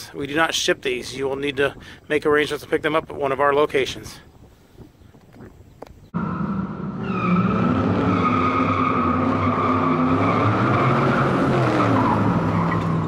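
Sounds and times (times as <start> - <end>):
car tyres squealing: 6.2 - 13.0.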